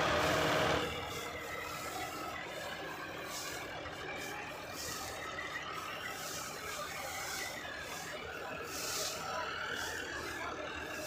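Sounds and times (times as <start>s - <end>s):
combine harvester droning: 0.0s - 2.5s.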